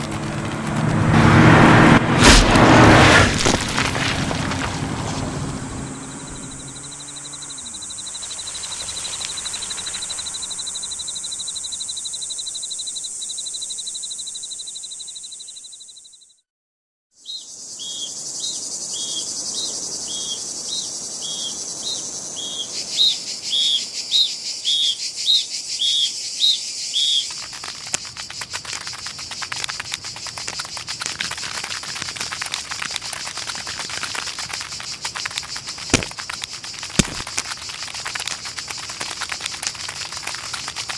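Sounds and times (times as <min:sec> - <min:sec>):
dense crackling patter: 0:00.0 - 0:10.9, 0:27.2 - 0:40.9
fast-pulsing insect trill: 0:05.8 - 0:16.3, 0:17.5 - 0:40.9.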